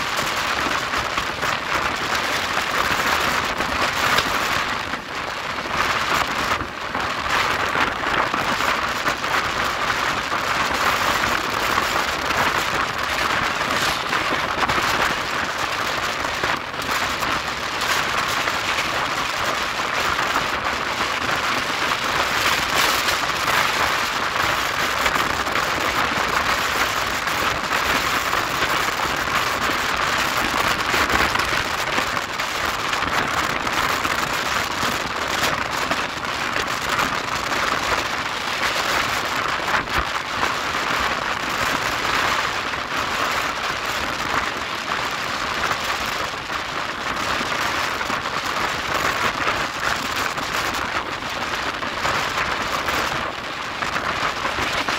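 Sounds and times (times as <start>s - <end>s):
rushing wind: 0.0s - 54.9s.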